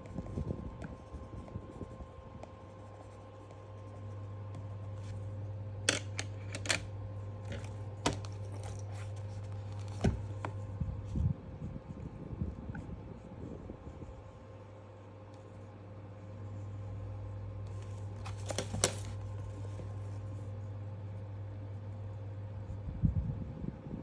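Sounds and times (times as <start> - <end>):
pencil scratching on paper: 0.0 - 5.3
low steady hum: 0.0 - 24.0
pencils clicking on a table: 5.9 - 6.9.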